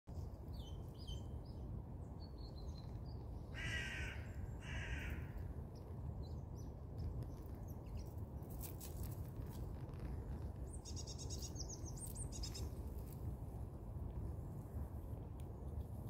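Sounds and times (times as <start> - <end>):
low background rumble: 0.1 - 16.0
small birds chirping: 0.5 - 13.1
crow cawing: 3.5 - 5.4.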